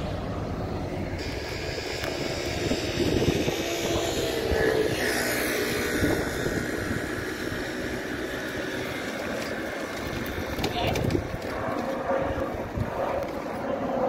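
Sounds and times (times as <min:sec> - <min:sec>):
tram electric drive humming: 0:00.0 - 0:13.6
tram high whine: 0:00.0 - 0:14.0.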